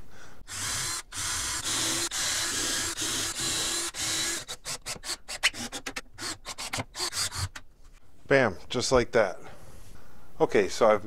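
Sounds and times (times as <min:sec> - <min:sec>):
cordless drill bursts: 0:00.5 - 0:07.6.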